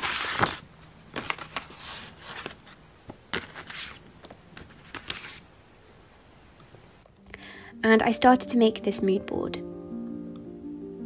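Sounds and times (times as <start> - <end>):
papers rustling and crinkling: 0.0 - 5.5.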